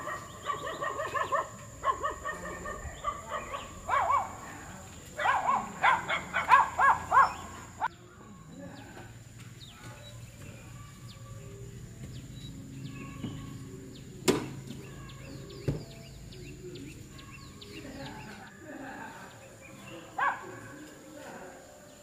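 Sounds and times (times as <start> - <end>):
dog barking: 0.0 - 4.5, 5.2 - 7.8, 20.2 - 20.7
small birds chirping: 0.0 - 22.0.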